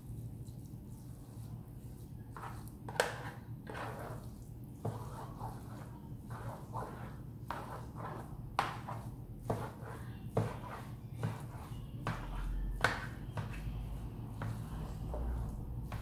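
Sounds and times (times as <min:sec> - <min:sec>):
rice paddle scraping tray: 0:02.3 - 0:11.6.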